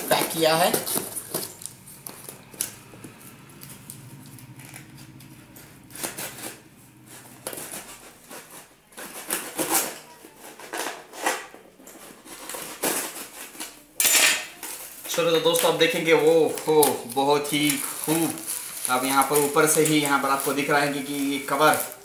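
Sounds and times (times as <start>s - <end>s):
knife rasping through tape and cardboard: 5.9s - 11.4s.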